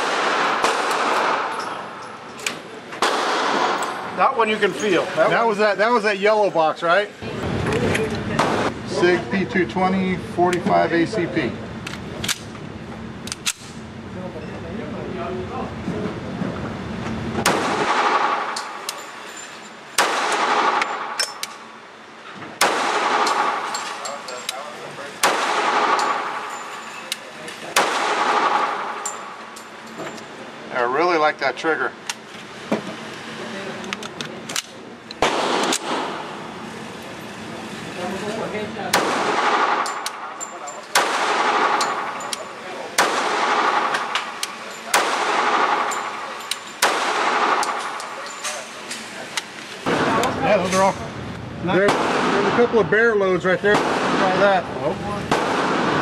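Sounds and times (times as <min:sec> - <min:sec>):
pistol shot echoing indoors: 0:00.0 - 0:01.8, 0:03.0 - 0:04.0, 0:20.0 - 0:21.2, 0:22.6 - 0:23.7, 0:25.2 - 0:26.4, 0:27.8 - 0:29.0, 0:35.2 - 0:36.3, 0:38.9 - 0:40.3, 0:40.9 - 0:42.1, 0:43.0 - 0:44.2, 0:44.9 - 0:48.0
light sharp metal clinks: 0:39.8 - 0:41.0.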